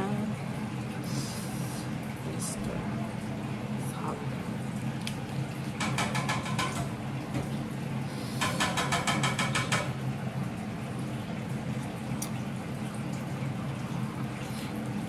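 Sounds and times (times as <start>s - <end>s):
steady low hum: 0.0s - 5.8s.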